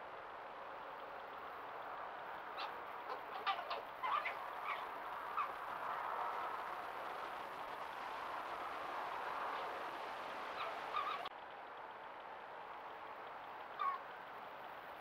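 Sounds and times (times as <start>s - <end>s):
steady background hiss: 0.0s - 15.0s
foxes chattering calls: 1.9s - 7.0s, 10.5s - 11.3s, 13.7s - 14.1s.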